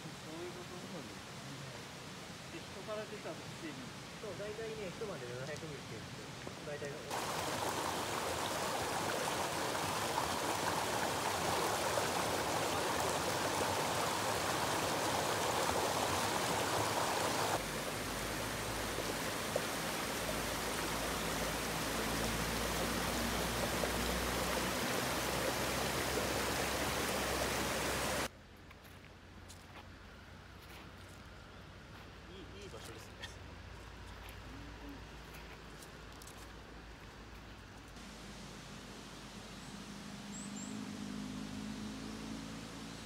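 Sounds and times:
water splashing over rocks: 0:07.1 - 0:28.3.

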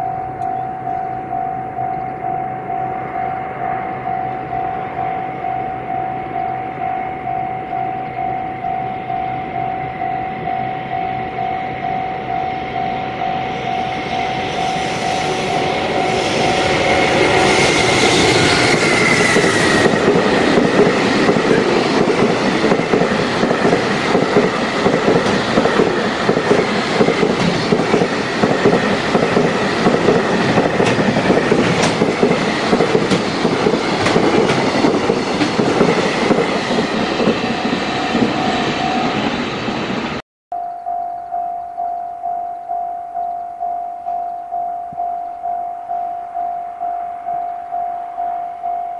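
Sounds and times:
high tone falling in pitch: 0:00.0 - 0:22.0, 0:40.5 - 0:48.9
level crossing warning bell: 0:00.0 - 0:26.4, 0:40.5 - 0:48.9
train wheels clickety-clack: 0:15.9 - 0:39.8.

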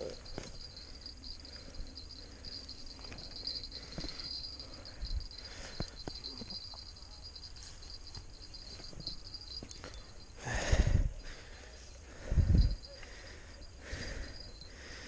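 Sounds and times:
insects chirring: 0:00.0 - 0:15.0.

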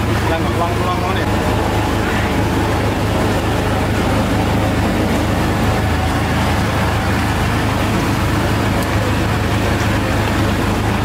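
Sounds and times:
constant wash of noise: 0:00.0 - 0:11.0
low engine hum: 0:00.0 - 0:11.0.

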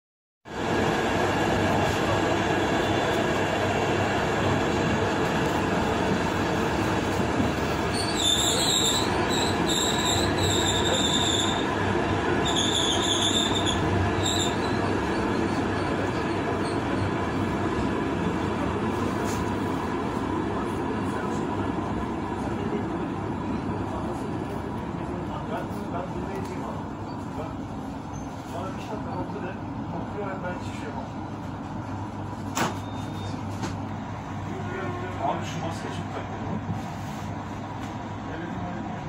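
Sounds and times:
train rumbling along track: 0:00.5 - 0:39.0
high-pitched wheel squeal: 0:07.8 - 0:11.7, 0:12.4 - 0:17.0.

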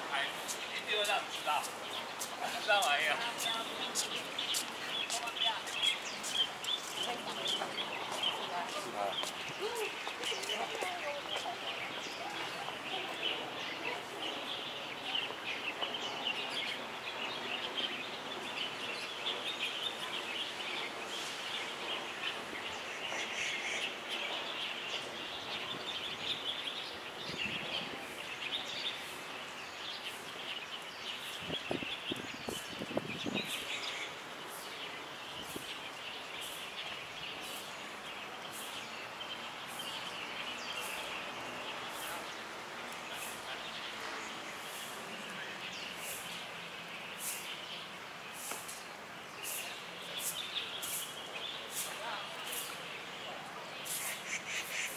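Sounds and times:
small birds chirping: 0:00.0 - 0:54.9.

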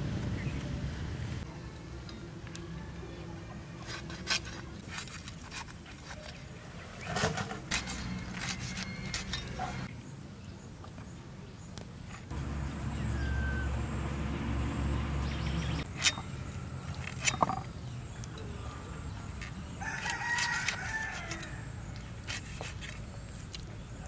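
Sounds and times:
rooster crowing: 0:12.4 - 0:14.6, 0:19.8 - 0:21.8.

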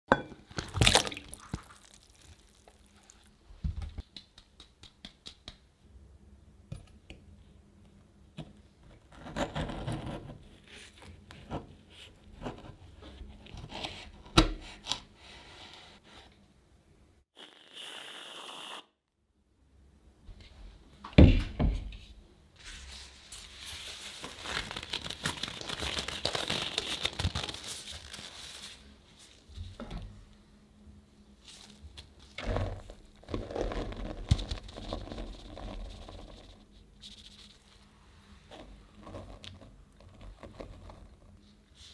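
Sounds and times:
water splashing in bowl: 0:00.5 - 0:03.2
crinkling and rustling: 0:22.6 - 0:30.2.

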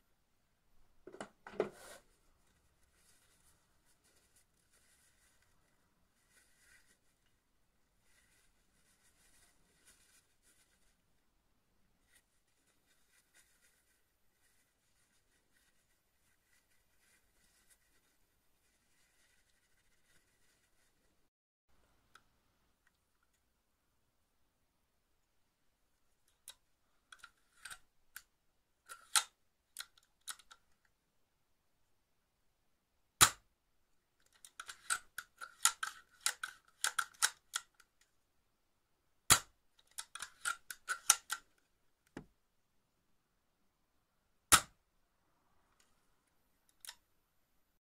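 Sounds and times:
loud sharp snap: 0:44.5 - 0:44.8.

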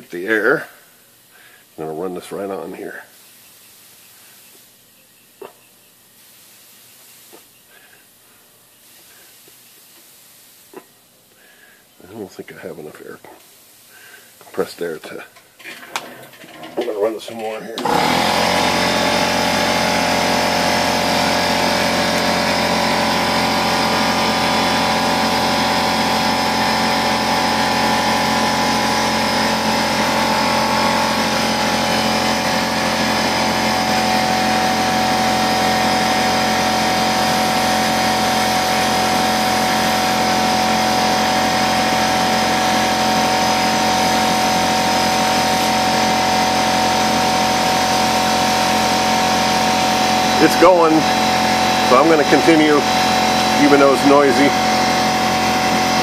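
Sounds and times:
air compressor running: 0:15.4 - 0:56.0.

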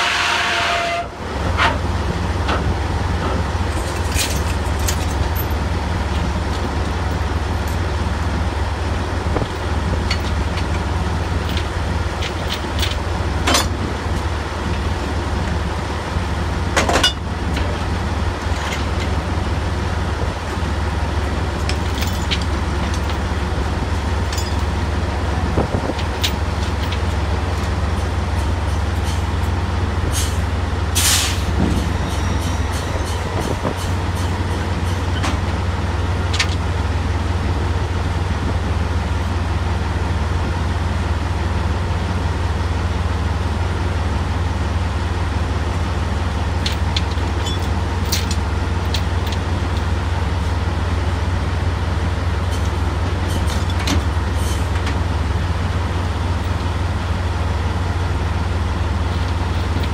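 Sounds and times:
drilling rig machinery droning: 0:00.0 - 0:59.9
metal clanks of rig tongs: 0:11.5 - 0:13.8, 0:46.6 - 0:49.4.

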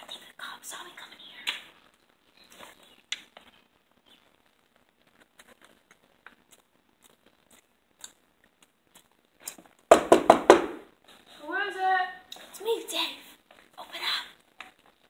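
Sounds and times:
quiet chewing: 0:05.2 - 0:09.8
knocks on a wooden door: 0:09.9 - 0:10.8.

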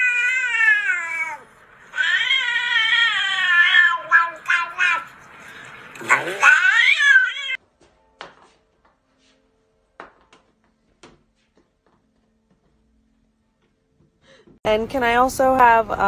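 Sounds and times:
cat yowling: 0:00.0 - 0:05.1, 0:06.0 - 0:07.6.

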